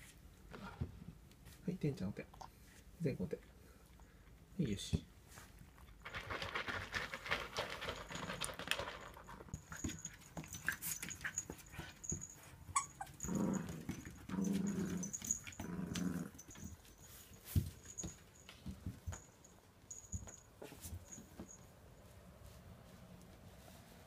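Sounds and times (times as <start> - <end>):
puppy eating from a bowl: 5.6 - 11.6
puppy play growls: 12.8 - 16.7.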